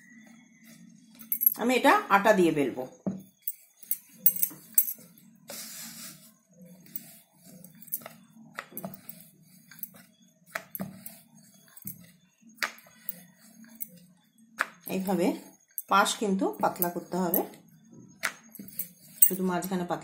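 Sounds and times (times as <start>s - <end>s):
low steady hum: 0.0s - 5.4s
hand rubbing dough: 5.5s - 17.3s.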